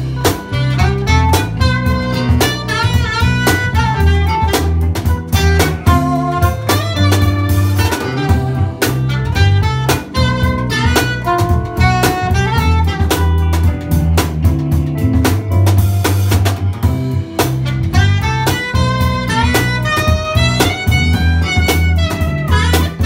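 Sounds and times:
electric guitar melody: 0:00.0 - 0:23.0
jazz band playing: 0:00.0 - 0:23.0.

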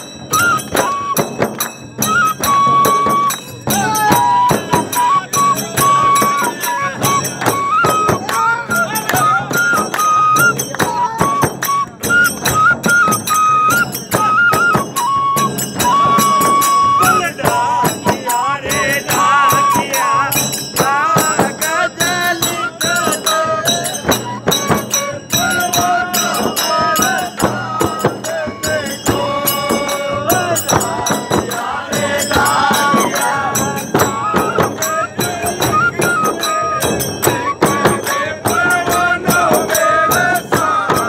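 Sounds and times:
bamboo flute melody: 0:00.0 - 0:41.0
frame drums beating: 0:00.0 - 0:41.0
jingling percussion: 0:00.0 - 0:41.0.

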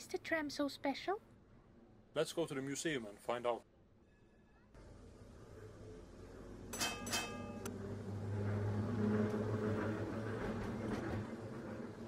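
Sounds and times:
tram rumble: 0:04.8 - 0:12.0
tram bell ringing: 0:06.7 - 0:07.7.

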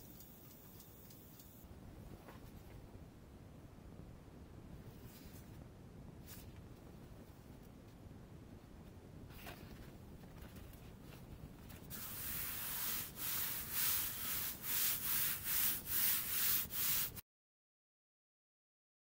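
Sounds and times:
hand rubbing paper: 0:10.4 - 0:17.2.

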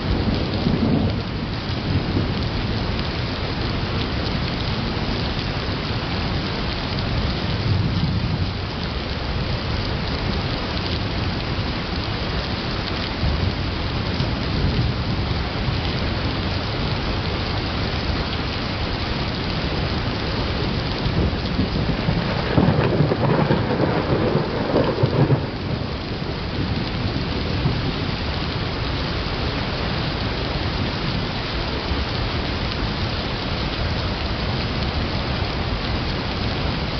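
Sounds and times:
steady rain: 0:00.0 - 0:36.9
thunder rumbling: 0:00.1 - 0:03.0, 0:20.5 - 0:29.8.

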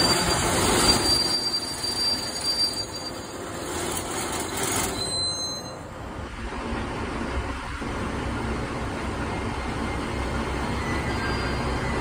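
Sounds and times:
high-pitched wheel squeal: 0:00.0 - 0:05.9, 0:10.8 - 0:12.0.

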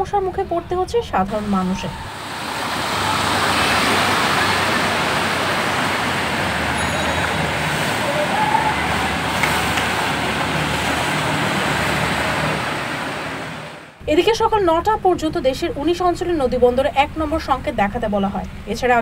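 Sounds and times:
faint engines running: 0:00.0 - 0:19.0
tyres splashing through floodwater: 0:01.4 - 0:14.0.

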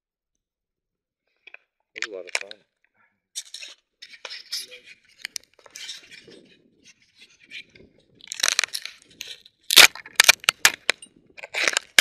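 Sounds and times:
rustling scrape: 0:03.4 - 0:09.5.

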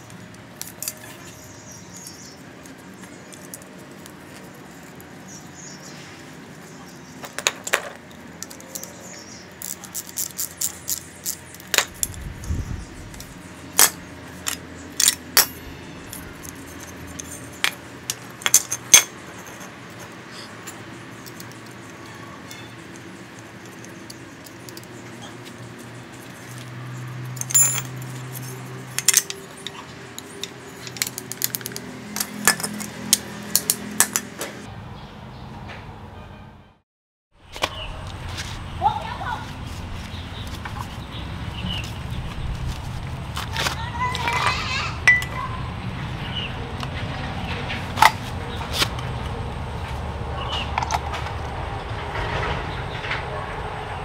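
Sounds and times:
sharp metallic clicks and clinks: 0:07.2 - 0:34.4.

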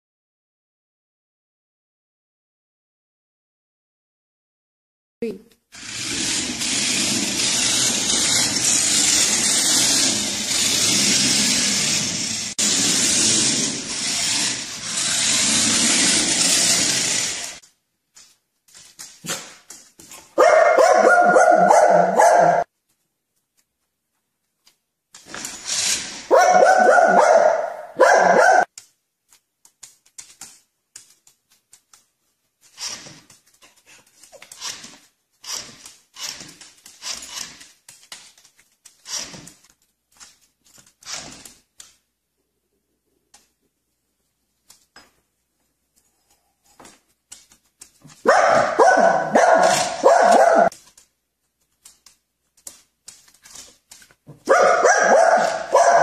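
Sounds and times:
dog barking: 0:20.4 - 0:22.7, 0:26.3 - 0:28.7, 0:48.2 - 0:50.7, 0:54.4 - 0:56.0.

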